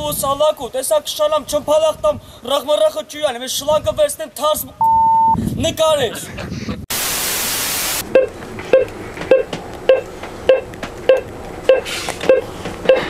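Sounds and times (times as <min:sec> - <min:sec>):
heart monitor beeping: 0:04.8 - 0:05.4, 0:08.1 - 0:13.0
tv static hiss: 0:06.9 - 0:08.0.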